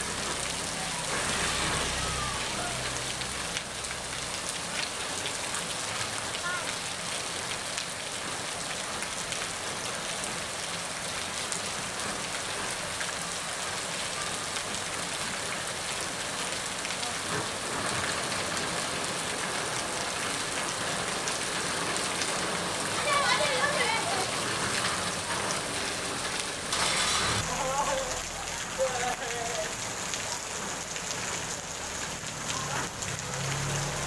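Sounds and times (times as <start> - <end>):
heavy rain on pavement: 0.0 - 34.0.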